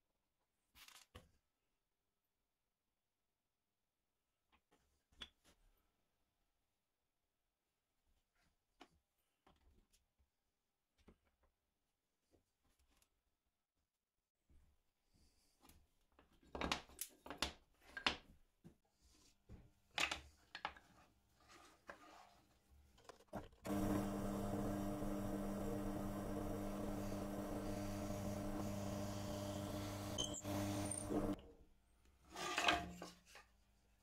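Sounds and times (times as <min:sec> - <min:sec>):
steady low hum: 0:23.7 - 0:31.4.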